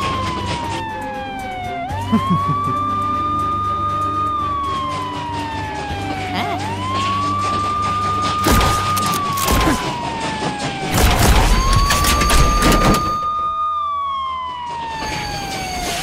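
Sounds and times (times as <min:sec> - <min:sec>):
train rumble with clatter: 0:00.0 - 0:01.8, 0:04.6 - 0:13.2
police siren wailing: 0:00.0 - 0:16.0.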